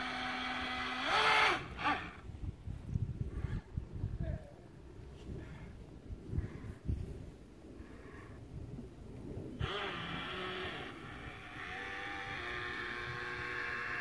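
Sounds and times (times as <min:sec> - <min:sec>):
model boat motor whining: 0:00.0 - 0:02.2, 0:09.6 - 0:14.0.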